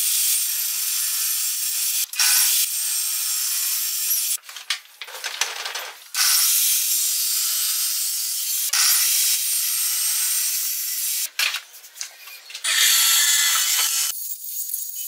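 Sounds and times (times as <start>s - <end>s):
table saw cutting wood: 0.0s - 4.4s, 6.2s - 11.3s, 12.6s - 14.1s.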